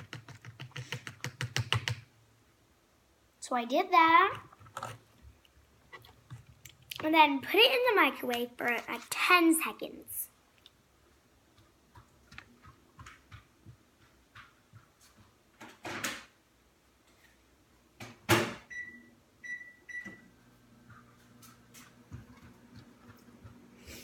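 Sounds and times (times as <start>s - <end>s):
keypad beeps: 18.7s - 20.2s.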